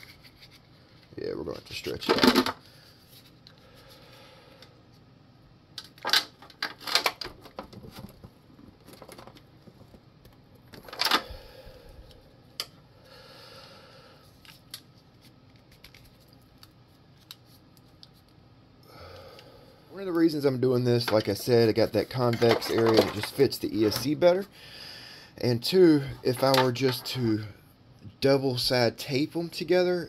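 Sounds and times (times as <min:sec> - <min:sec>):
clicks rustles and small knocks: 0:05.8 - 0:11.2, 0:22.1 - 0:24.1
hands handling plastic tubing: 0:14.4 - 0:18.4, 0:21.0 - 0:24.2.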